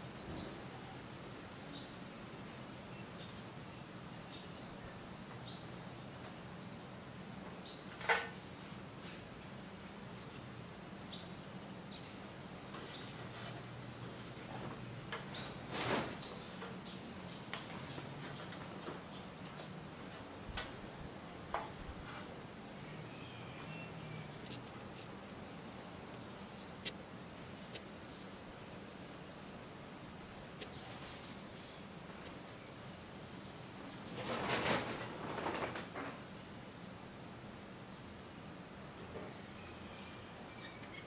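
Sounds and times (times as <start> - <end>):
steady background noise: 0.0 - 41.0
rustling noise: 12.0 - 22.8, 23.6 - 26.2, 30.5 - 32.6, 33.7 - 36.4.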